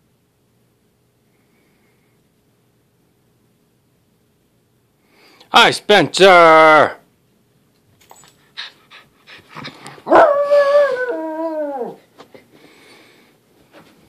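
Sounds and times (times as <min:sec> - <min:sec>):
dog howling whine: 0:10.0 - 0:12.1.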